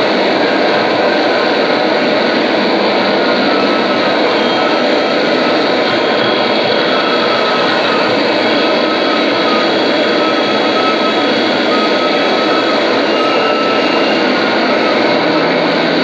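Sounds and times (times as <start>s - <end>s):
harsh noise: 0.0s - 16.0s
thin whistling tones: 3.3s - 16.0s.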